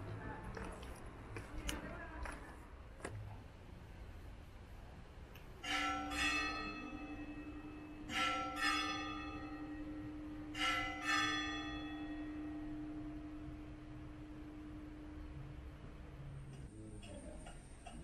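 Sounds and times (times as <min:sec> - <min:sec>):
church bell ringing: 0:05.6 - 0:15.7.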